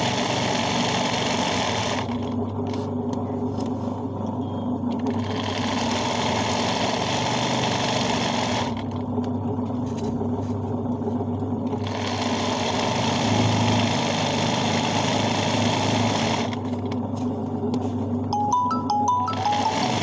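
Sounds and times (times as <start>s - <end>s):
sewing machine motor hum: 0.0s - 2.9s, 4.8s - 9.8s, 10.8s - 17.8s, 19.3s - 20.0s.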